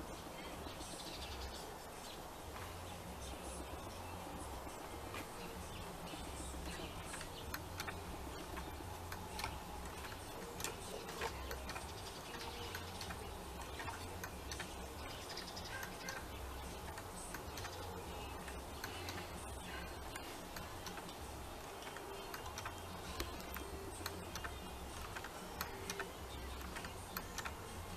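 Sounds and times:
wooden mechanism clicking: 6.6 - 27.9.

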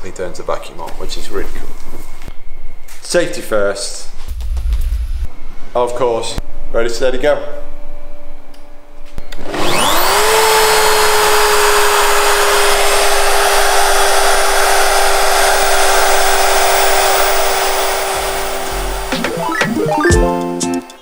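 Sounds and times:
router spindle motor whine: 9.4 - 19.1
guitar music: 18.7 - 21.0.

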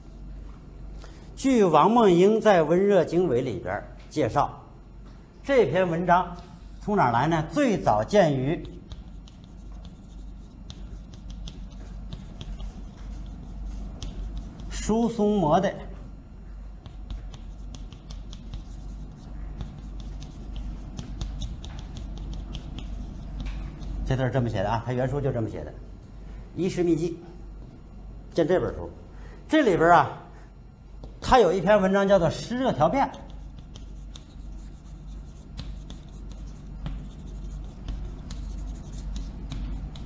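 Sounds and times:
low steady hum: 0.0 - 40.0
chalk scratching: 6.4 - 15.5, 16.8 - 24.5, 31.0 - 40.0
chalk tapping on blackboard: 8.0 - 15.2, 16.8 - 24.3, 31.0 - 31.2, 32.8 - 40.0.

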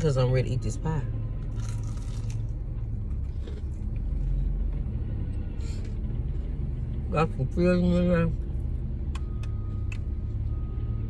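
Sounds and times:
car engine idling: 0.0 - 11.0
crisp bite into pastry: 1.5 - 2.5
quiet chewing: 3.1 - 4.0.

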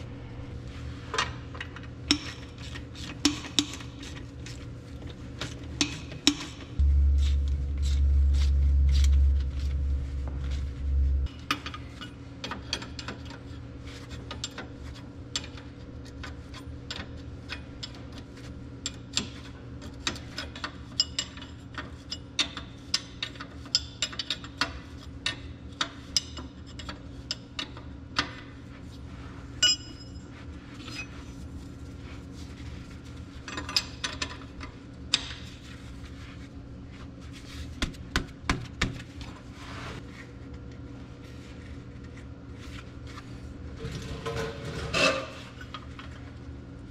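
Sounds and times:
deep low rumble: 6.8 - 11.4.

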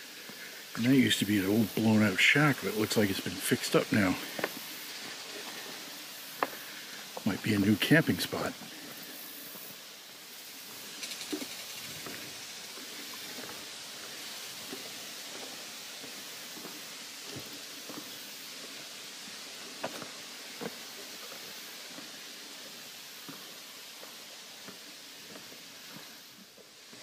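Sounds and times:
leaves rustling: 0.0 - 27.0
footsteps on gravel: 1.5 - 9.7.

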